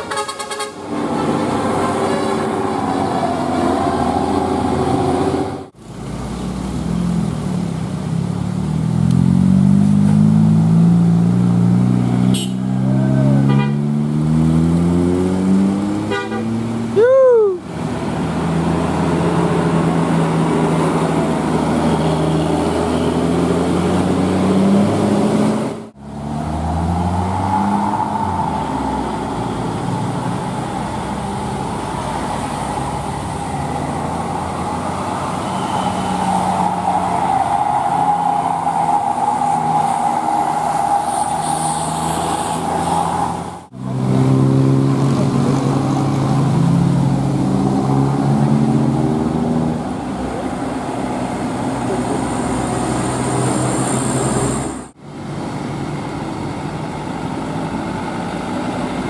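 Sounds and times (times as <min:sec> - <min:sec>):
horn toots: 0:00.0 - 0:00.8, 0:01.8 - 0:02.7, 0:12.2 - 0:14.0, 0:16.0 - 0:16.6
bus diesel engines: 0:00.0 - 0:59.0.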